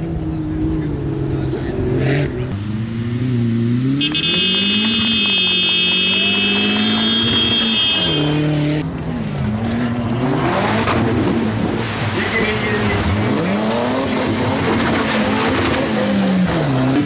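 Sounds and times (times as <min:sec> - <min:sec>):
off-road car engine revving: 0:00.0 - 0:17.0
high whistle-like tone: 0:04.0 - 0:08.5.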